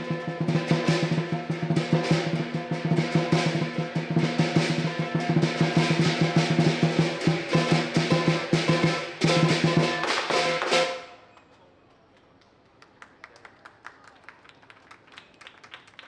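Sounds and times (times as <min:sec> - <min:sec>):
large drum beaten fast: 0:00.0 - 0:11.0
clashing cymbals: 0:00.0 - 0:11.1.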